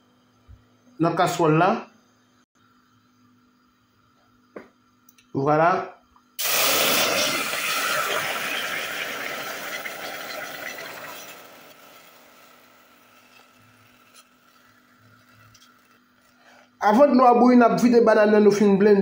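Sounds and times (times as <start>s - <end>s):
water pouring into saucepan: 6.4s - 16.0s.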